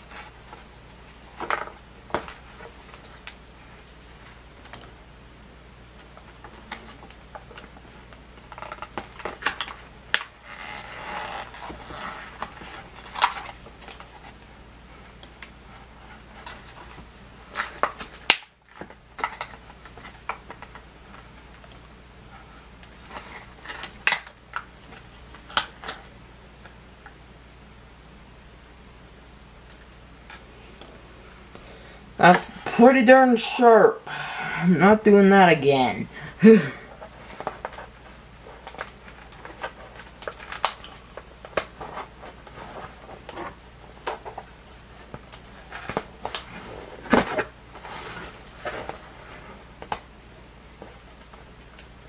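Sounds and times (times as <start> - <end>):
plastic packaging crinkling and clicking: 6.0 - 14.5, 16.4 - 21.9, 37.0 - 49.2.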